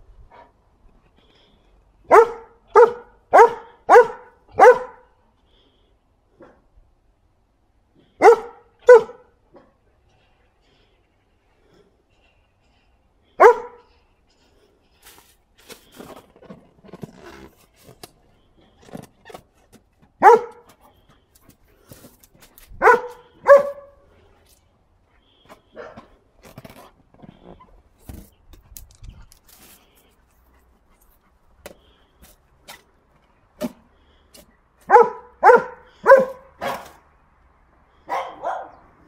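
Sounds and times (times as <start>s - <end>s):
dog barking: 2.1s - 5.1s, 8.2s - 9.3s, 13.4s - 13.9s, 20.2s - 20.7s, 22.8s - 24.0s, 25.7s - 26.0s, 34.8s - 37.0s, 38.1s - 38.9s.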